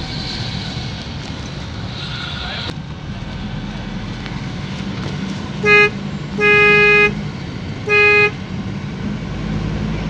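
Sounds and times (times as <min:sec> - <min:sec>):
moving vehicle hum: 0:00.0 - 0:10.0
vehicle horn: 0:05.6 - 0:07.2, 0:07.8 - 0:08.4.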